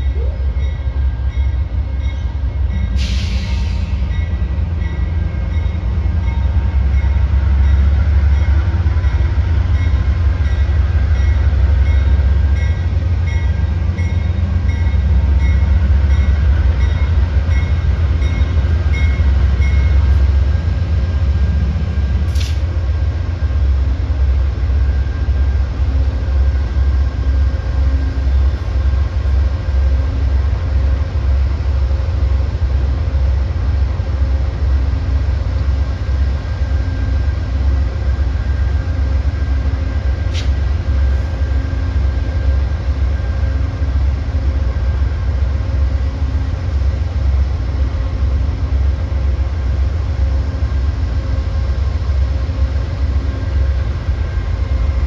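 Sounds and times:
train rumbling past: 0.0s - 55.0s
sharp click: 22.3s - 22.7s, 40.3s - 40.6s.

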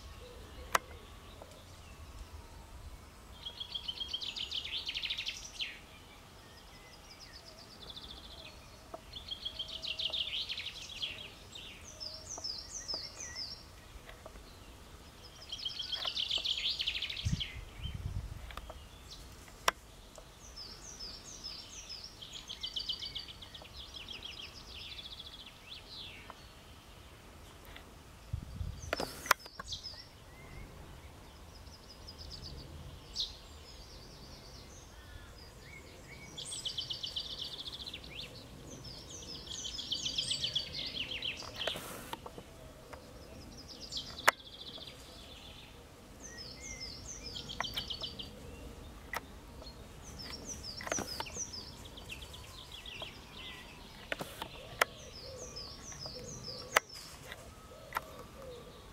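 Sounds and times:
low background noise: 0.0s - 58.9s
songbirds chirping and trilling: 0.0s - 58.9s
sharp clicks: 28.9s - 29.7s.

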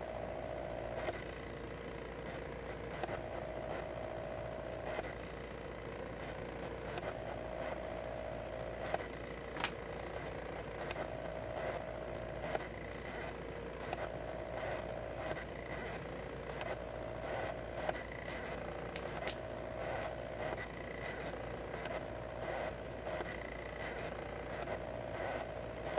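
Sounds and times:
sharp clicks: 18.9s - 19.4s.

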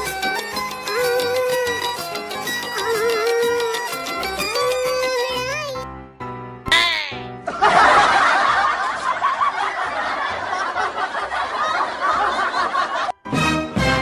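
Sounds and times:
laugh track: 6.7s - 13.2s.

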